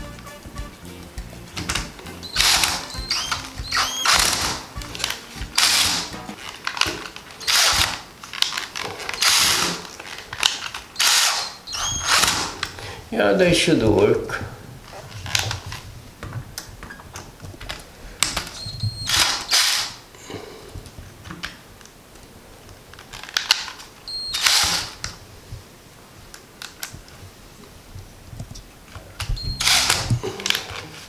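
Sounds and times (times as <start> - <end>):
drill driving screws: 1.6 - 8.1, 8.8 - 9.9, 11.0 - 12.7, 18.6 - 20.0, 24.2 - 25.0, 29.4 - 30.3.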